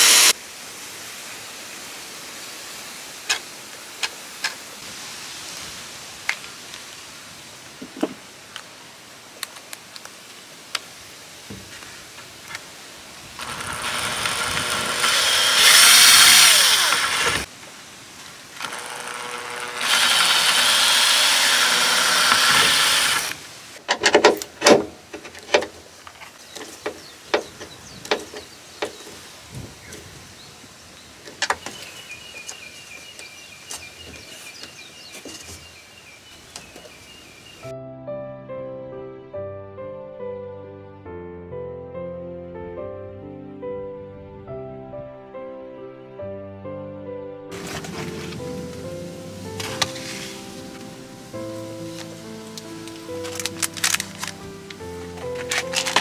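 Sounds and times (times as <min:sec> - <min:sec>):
cordless drill boring into wood: 0:00.0 - 0:00.3, 0:13.4 - 0:17.5, 0:18.6 - 0:23.4.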